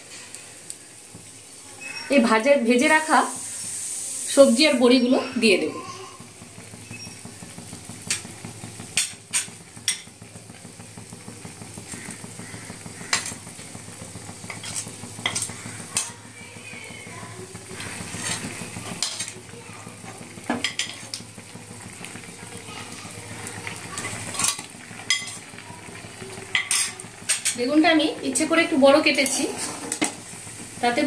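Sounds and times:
pan hissing on stove: 0:00.0 - 0:31.0
metal spoon clinking on pan: 0:09.0 - 0:10.1, 0:14.5 - 0:16.2, 0:20.5 - 0:21.1, 0:24.0 - 0:25.4, 0:26.5 - 0:27.6.

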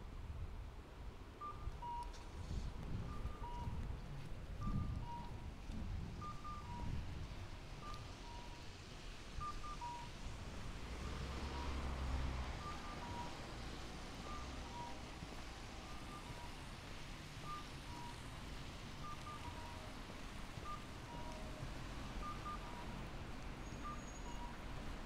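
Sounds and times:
steady street hum: 0:00.0 - 0:25.0
vehicle rumble: 0:00.0 - 0:25.0
pedestrian crossing signal chirps: 0:01.4 - 0:02.2, 0:03.0 - 0:04.0, 0:04.6 - 0:05.5, 0:06.2 - 0:07.2, 0:07.8 - 0:08.7, 0:09.4 - 0:10.3, 0:11.0 - 0:18.4, 0:19.0 - 0:25.0.

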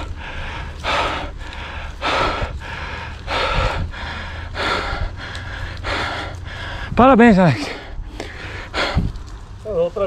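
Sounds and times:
man breathing hard: 0:00.0 - 0:07.0, 0:07.6 - 0:09.3.

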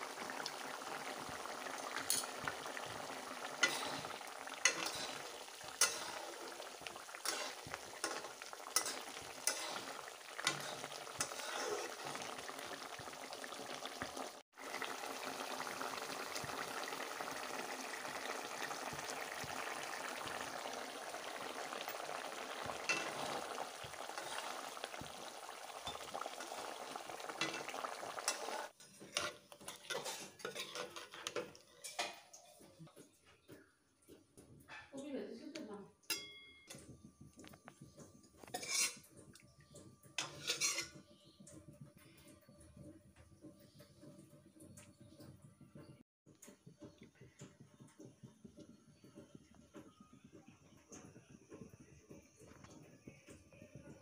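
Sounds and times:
curry sizzling and bubbling: 0:00.0 - 0:54.0
spoon clinking against pan: 0:07.2 - 0:09.8, 0:36.1 - 0:37.0.

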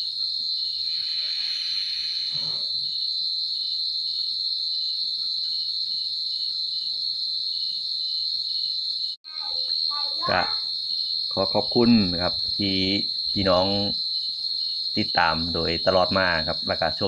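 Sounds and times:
crickets trilling: 0:00.0 - 0:17.0
insect chirping: 0:00.0 - 0:17.0.

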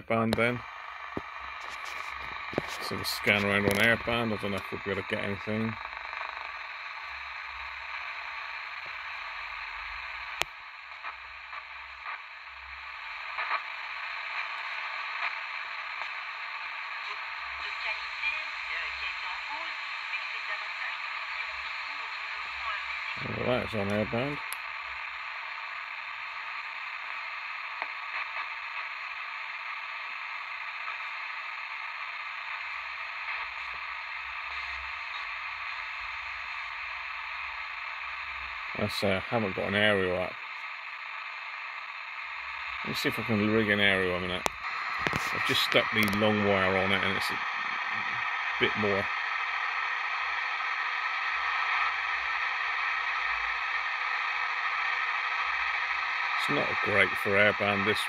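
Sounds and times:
radio static hiss: 0:00.0 - 0:58.0.

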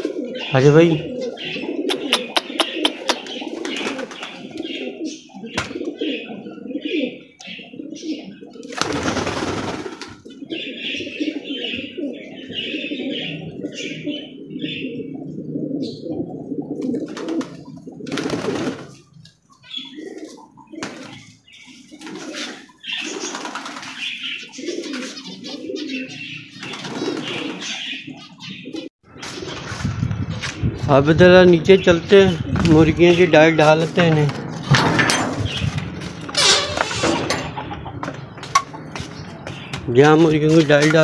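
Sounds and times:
pigeons cooing: 0:00.0 - 0:41.0
high bird chirps: 0:01.2 - 0:04.2.

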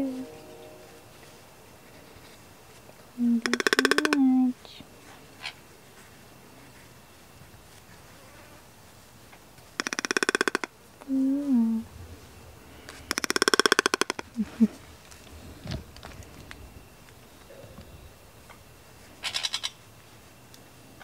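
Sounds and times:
soft low wavering note: 0:00.0 - 0:03.5
toucan rattling calls: 0:03.4 - 0:04.5, 0:09.6 - 0:10.8, 0:12.9 - 0:14.4, 0:19.2 - 0:19.9.

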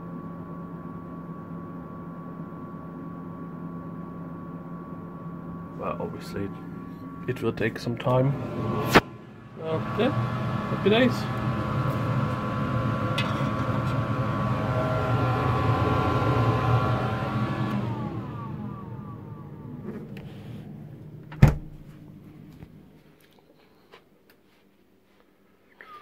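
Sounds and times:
fridge motor humming: 0:05.4 - 0:22.9.

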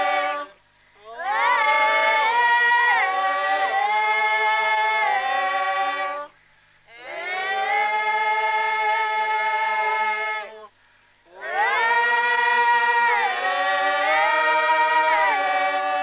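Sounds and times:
group singing: 0:00.0 - 0:10.7, 0:11.3 - 0:16.0.

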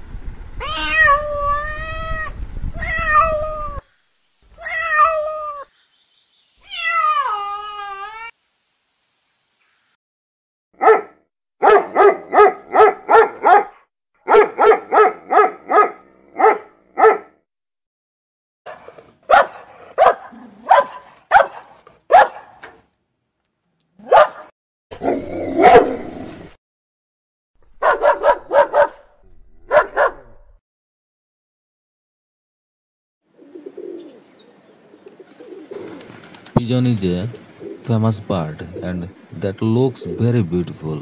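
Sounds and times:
dog barking: 0:10.8 - 0:17.4, 0:18.7 - 0:22.7, 0:24.0 - 0:24.5, 0:25.6 - 0:26.0, 0:27.8 - 0:30.4.

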